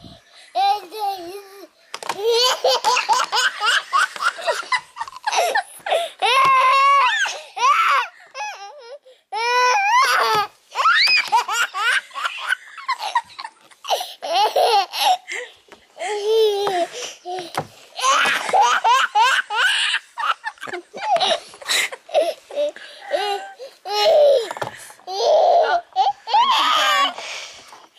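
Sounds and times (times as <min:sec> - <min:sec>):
toddler laughing: 0:00.6 - 0:08.8, 0:09.9 - 0:15.4, 0:16.0 - 0:27.2
toddler breathing: 0:15.0 - 0:18.0, 0:21.2 - 0:27.9.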